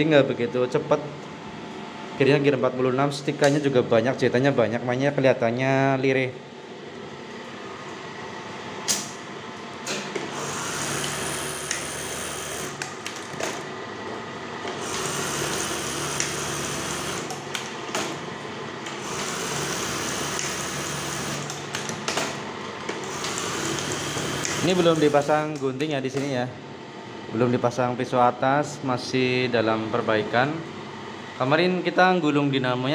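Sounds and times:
sewing machine motor tone: 10.3s - 12.8s, 14.8s - 17.5s, 18.9s - 21.6s, 23.0s - 25.3s
sewing machine stitching: 10.3s - 12.8s, 14.8s - 17.4s, 19.0s - 21.5s, 23.1s - 25.2s
sewing machine clicks: 23.1s - 25.2s.

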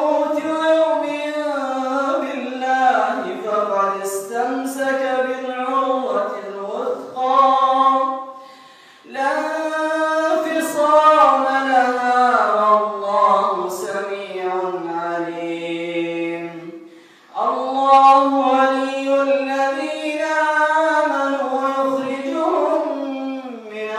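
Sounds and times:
man chanting: 0.0s - 8.4s, 9.0s - 23.9s
short breaths: 8.3s - 9.1s, 16.8s - 17.4s.

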